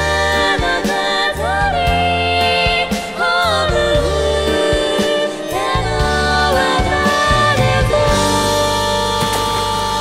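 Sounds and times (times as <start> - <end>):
live band playing: 0.0 - 10.0
women singing into microphones: 0.0 - 10.0
bass line: 5.6 - 10.0.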